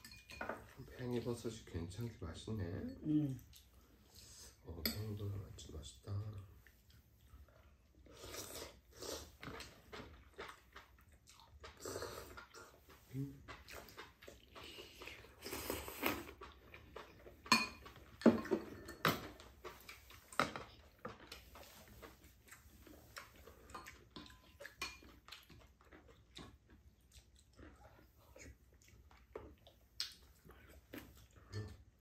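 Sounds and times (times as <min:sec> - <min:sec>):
chopsticks and spoons clicking on bowls: 0:00.0 - 0:01.2, 0:04.7 - 0:05.3, 0:16.4 - 0:21.3
noodles being slurped: 0:08.0 - 0:17.4.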